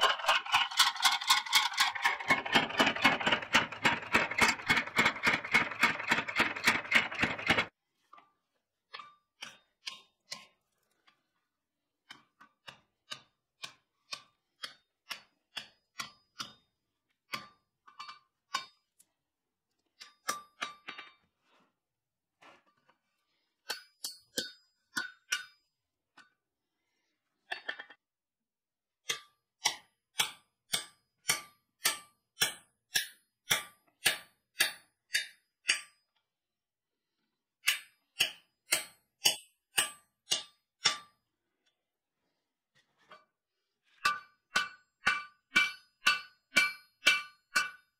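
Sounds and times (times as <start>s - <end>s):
hand hammer ringing on anvil: 44.1s - 47.9s.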